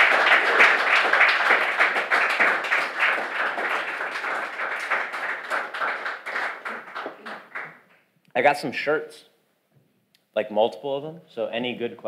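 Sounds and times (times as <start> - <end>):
audience applauding: 0.0 - 7.8.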